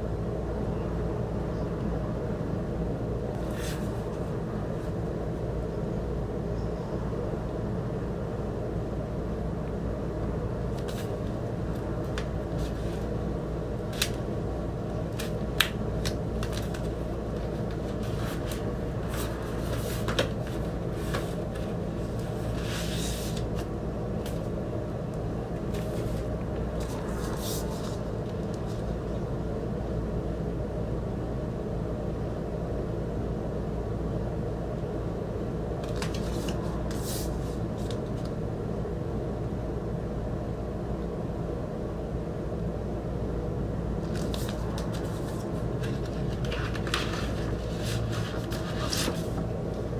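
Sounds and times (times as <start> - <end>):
steady low hum: 0.0 - 49.9
cardboard and plastic rustling: 10.7 - 13.1, 15.0 - 24.5, 25.6 - 28.9, 35.8 - 38.3, 44.0 - 49.6.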